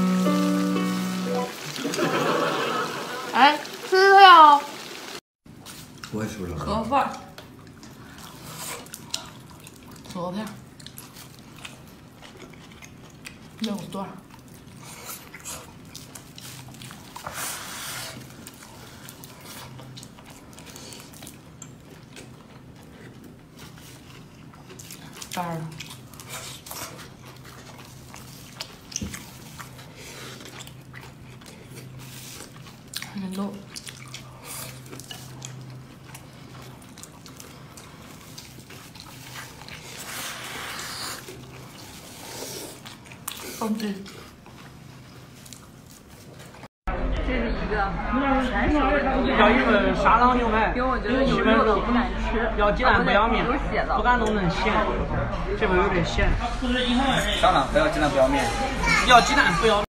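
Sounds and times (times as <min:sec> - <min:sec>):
person chewing food: 0:07.3 - 0:46.7
noisy slurp: 0:07.4 - 0:13.5, 0:14.3 - 0:46.6.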